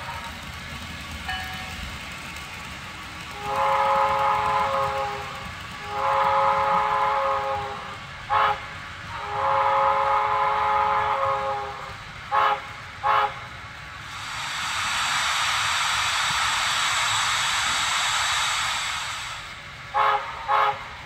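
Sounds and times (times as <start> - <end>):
model train steam whistle blasts: 3.4 - 13.4, 19.0 - 21.0.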